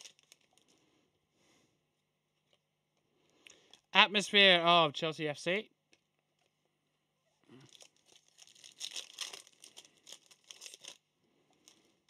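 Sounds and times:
foil wrapper tearing and crinkling: 0.0 - 0.8, 7.6 - 11.0.

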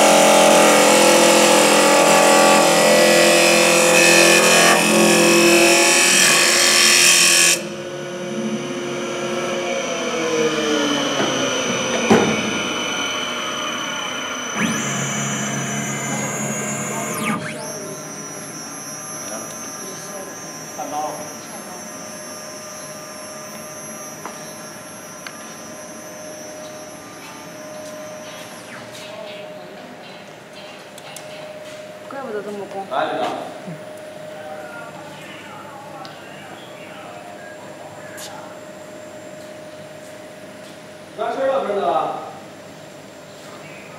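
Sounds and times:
lathe cutting wood: 0.0 - 27.3
motor high whine: 0.0 - 43.9
falling tone: 7.6 - 30.0.

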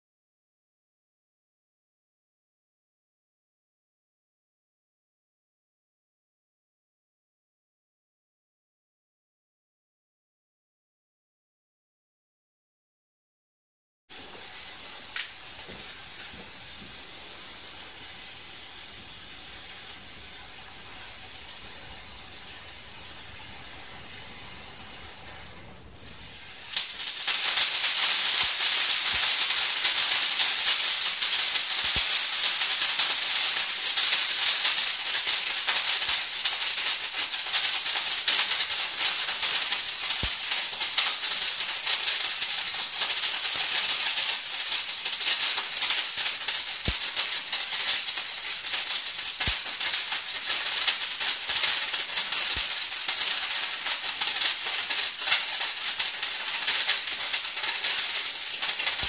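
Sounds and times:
firework torch crackling: 14.1 - 59.0
torch hissing: 14.1 - 59.0.

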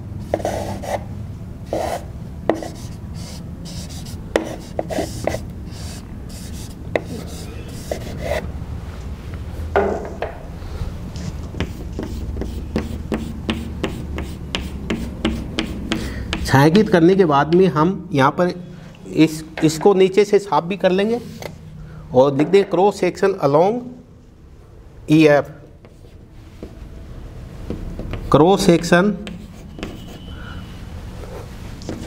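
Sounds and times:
chalk scratching on blackboard: 0.3 - 1.1, 1.7 - 8.4, 11.2 - 16.6, 27.7 - 30.3.

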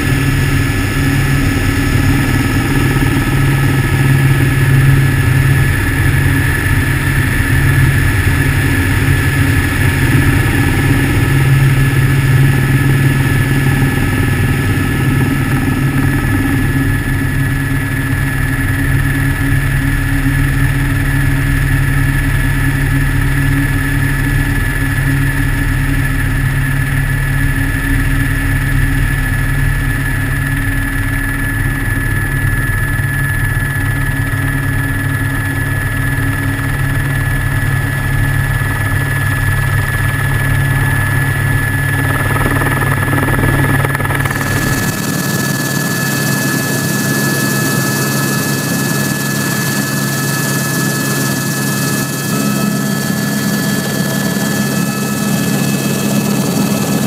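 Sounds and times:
helicopter rotor and engine drone: 0.0 - 57.0
high whine: 38.0 - 47.8.

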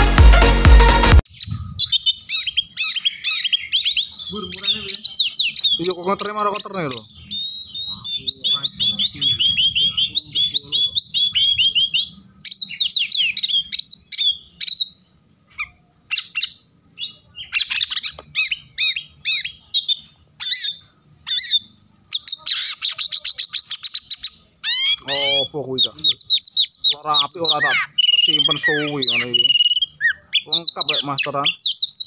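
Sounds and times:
bird singing chirps and whistles: 1.2 - 32.0.

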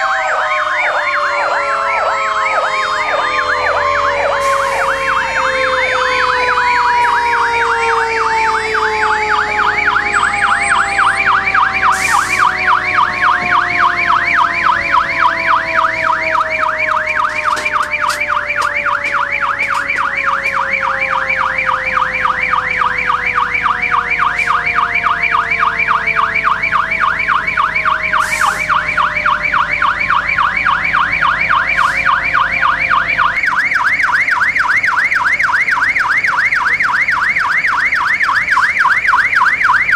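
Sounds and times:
electronic siren yelping: 0.0 - 39.9
low siren tones falling: 0.0 - 39.9.

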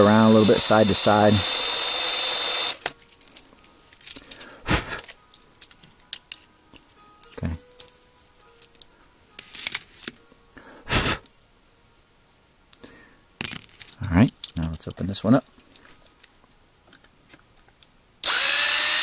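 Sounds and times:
toy truck parts clicking and knocking: 2.6 - 6.5, 13.4 - 15.0
handling noises: 2.8 - 10.3, 13.4 - 17.8.

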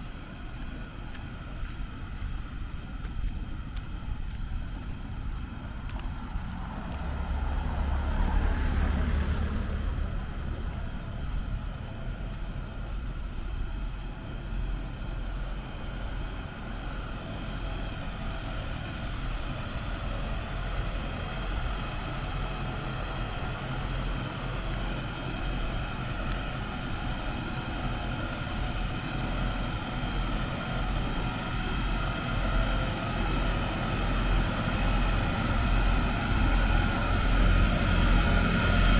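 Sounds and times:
engine hum: 0.0 - 38.9
vehicle passing: 5.6 - 12.4.

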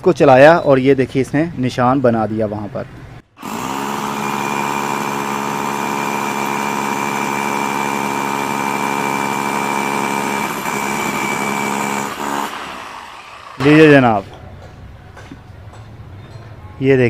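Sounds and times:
hammer drill drilling into brick: 3.4 - 13.9.

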